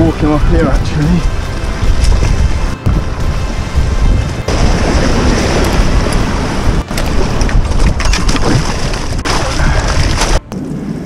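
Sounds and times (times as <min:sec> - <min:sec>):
wind buffeting microphone: 0:00.0 - 0:11.0
surf washing over rocks: 0:04.5 - 0:10.4.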